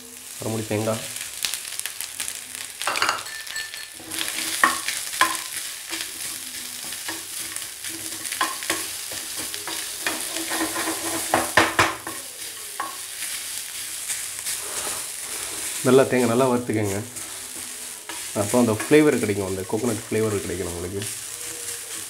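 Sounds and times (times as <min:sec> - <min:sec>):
frying sizzle: 0:00.0 - 0:22.0
metal spatula scraping pan: 0:03.3 - 0:11.8, 0:14.5 - 0:22.0.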